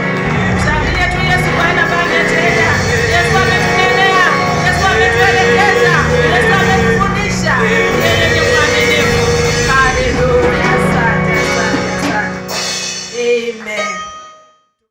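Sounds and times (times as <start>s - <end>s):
congregation clapping: 0.0s - 6.6s
instrumental backing: 0.0s - 14.8s
woman singing into microphone: 0.8s - 12.5s.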